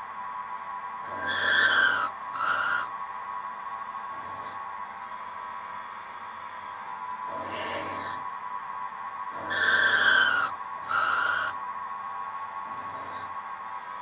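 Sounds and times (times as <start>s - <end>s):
high motor whine: 0.0s - 14.0s
milling cutter squealing cuts: 1.1s - 2.9s, 7.3s - 8.2s, 9.4s - 11.6s.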